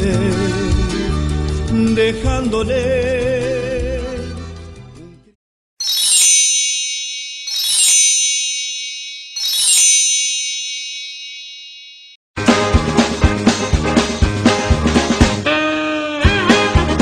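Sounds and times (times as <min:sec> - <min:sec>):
high ringing chimes: 0:05.8 - 0:12.2.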